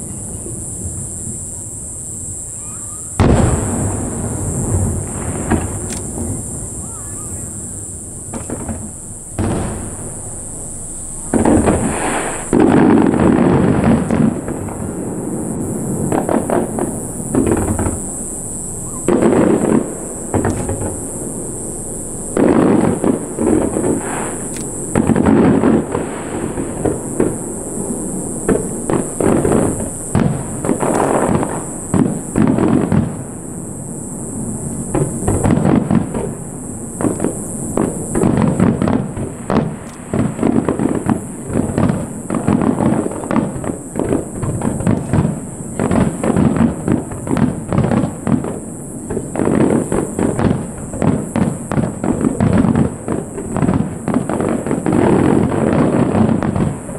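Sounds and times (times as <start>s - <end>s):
fireworks bursting and crackling: 0.0s - 56.9s.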